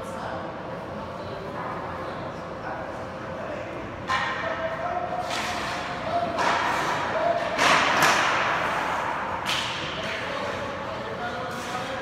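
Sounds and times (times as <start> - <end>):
hockey pucks and sticks cracking: 5.2 - 10.6.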